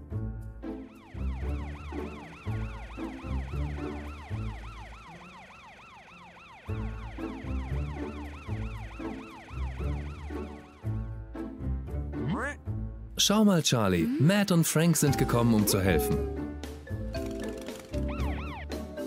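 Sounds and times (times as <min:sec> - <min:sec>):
cartoon sirens wailing: 0:00.8 - 0:11.1, 0:18.0 - 0:18.9.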